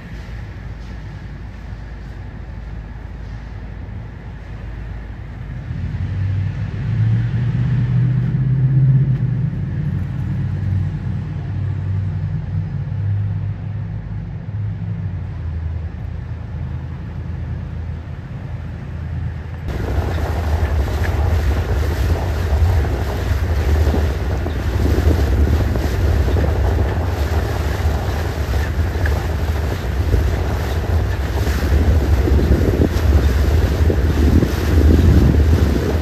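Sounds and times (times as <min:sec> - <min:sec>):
low engine rumble: 0:00.0 - 0:36.0
wind buffeting microphone: 0:19.3 - 0:36.0.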